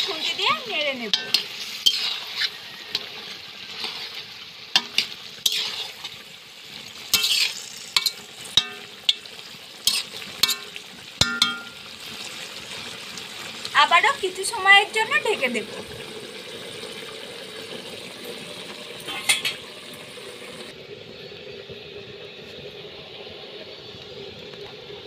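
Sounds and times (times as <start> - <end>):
metal spatula scraping pan: 0.0 - 6.2, 7.0 - 11.8, 19.1 - 19.7
meat and potatoes sizzling: 0.0 - 25.0.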